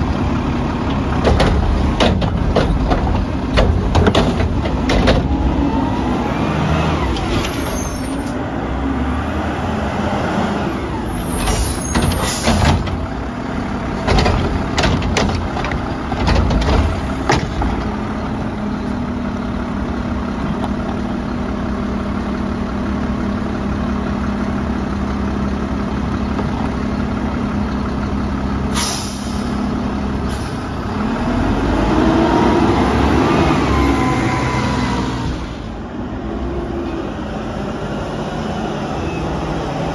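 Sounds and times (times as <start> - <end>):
diesel engine droning and revving: 0.0 - 39.9
garbage truck clanks and bangs: 0.7 - 5.6, 11.2 - 18.5
air brake hisses: 28.7 - 29.6, 30.3 - 30.7.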